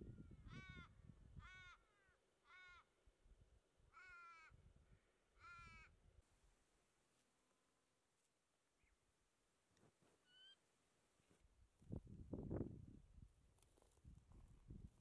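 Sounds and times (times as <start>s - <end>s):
crow cawing: 0.5s - 2.9s, 3.9s - 4.6s, 5.4s - 5.9s.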